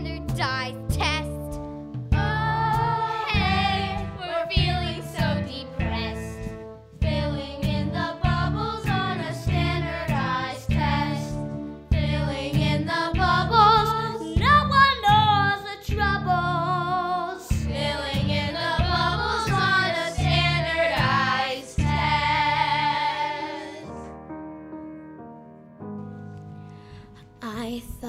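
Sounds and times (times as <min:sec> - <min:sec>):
instrumental accompaniment: 0:00.0 - 0:27.4
children singing: 0:02.2 - 0:05.4, 0:07.1 - 0:11.4, 0:17.7 - 0:24.0.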